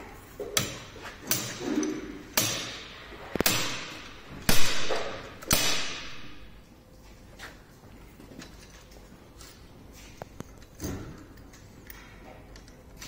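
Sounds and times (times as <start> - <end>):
slide hammer metallic strikes: 2.3 - 6.5.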